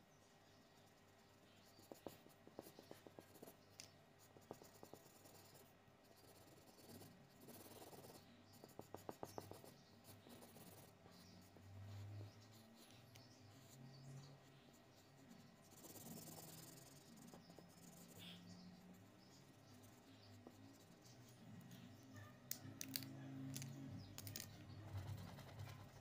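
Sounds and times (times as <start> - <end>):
marker scratching on paper: 0.7 - 26.0.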